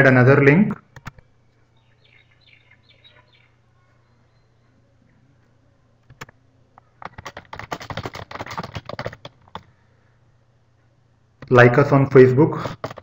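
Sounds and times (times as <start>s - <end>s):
typing on computer keyboard: 1.0s - 1.2s, 6.1s - 9.7s, 12.6s - 13.0s.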